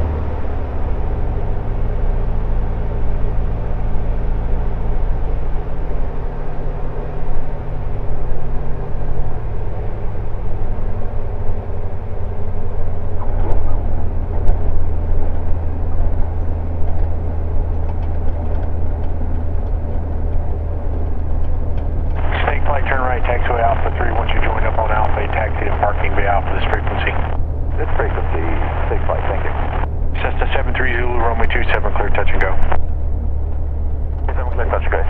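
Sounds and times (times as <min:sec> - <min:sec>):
propeller airplane engine idling: 0:00.0 - 0:35.0
airflow noise: 0:20.0 - 0:35.0.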